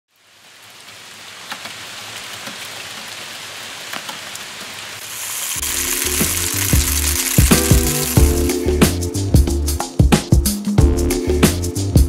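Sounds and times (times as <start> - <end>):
steady rain falling: 0.1 - 8.6
drops ticking: 5.4 - 8.6
background music with beat: 5.6 - 12.0.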